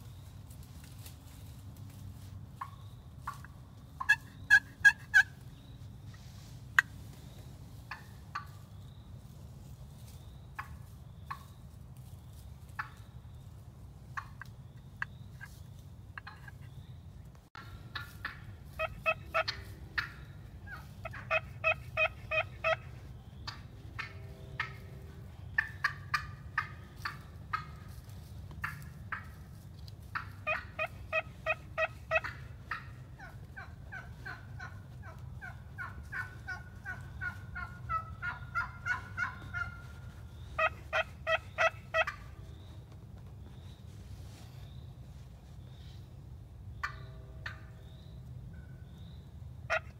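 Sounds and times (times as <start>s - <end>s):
steady low hum: 0.0s - 49.7s
turkey yelping and clucking: 2.6s - 5.4s, 7.9s - 8.6s, 14.2s - 15.6s, 17.6s - 24.8s, 25.6s - 27.9s, 28.6s - 29.4s, 30.0s - 42.3s, 46.8s - 47.8s, 49.7s - 49.9s.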